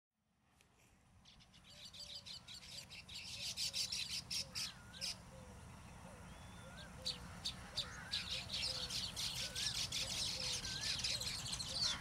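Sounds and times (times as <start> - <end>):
birds chattering: 1.2 - 12.0.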